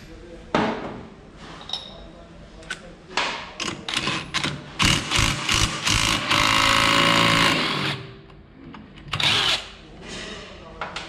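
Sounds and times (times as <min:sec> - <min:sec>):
impact wrench hammering: 0:04.0 - 0:08.0.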